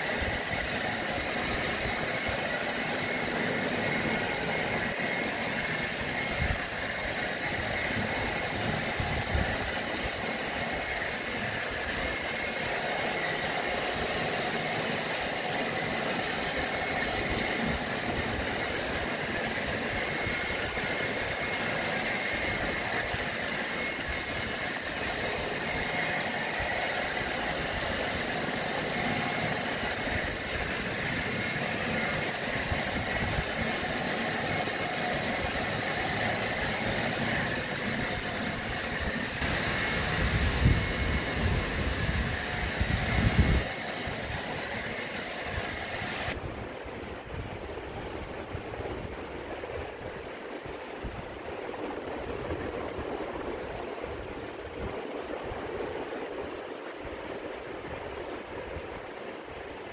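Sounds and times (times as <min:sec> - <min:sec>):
hair dryer running: 0:00.0 - 0:46.4.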